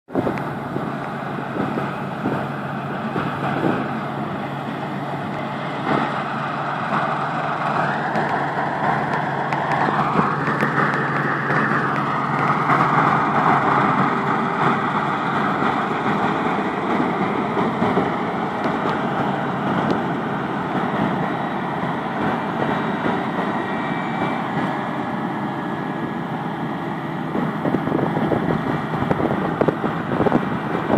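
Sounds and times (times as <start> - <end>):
combine harvester droning: 0.1 - 30.9.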